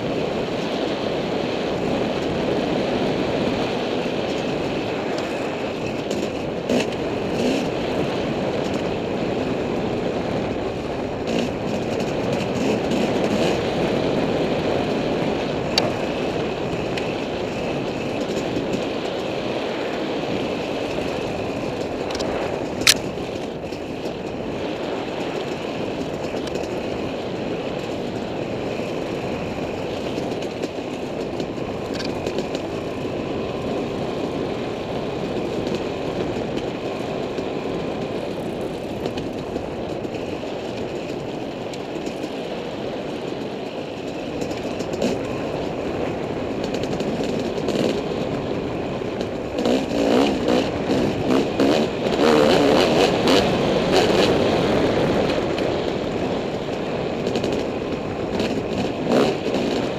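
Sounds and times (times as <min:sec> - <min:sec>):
dirt bike engine running: 0:00.0 - 0:59.9
rushing wind noise: 0:00.0 - 0:59.9.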